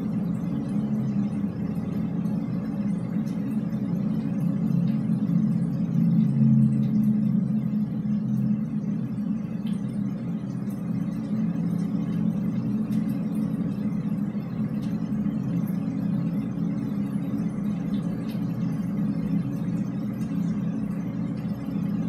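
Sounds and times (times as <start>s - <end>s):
low rumble in drainpipe: 0.0s - 22.0s.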